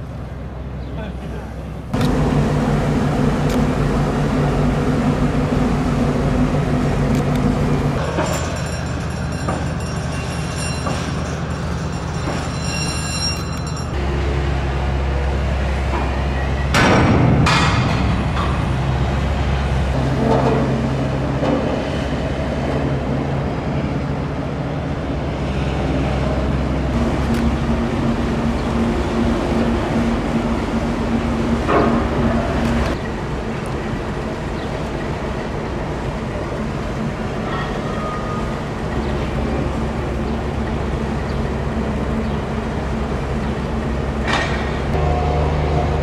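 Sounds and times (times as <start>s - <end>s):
low machinery hum: 0.0s - 46.0s.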